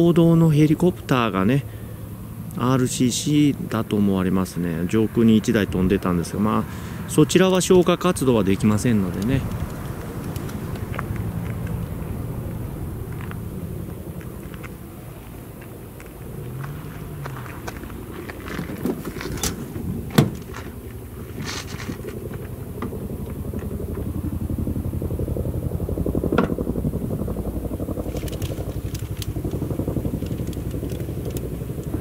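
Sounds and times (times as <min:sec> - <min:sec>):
engine throbbing in rapid pulse: 0:08.0 - 0:32.0
sharp clicks and knocks: 0:09.1 - 0:11.8.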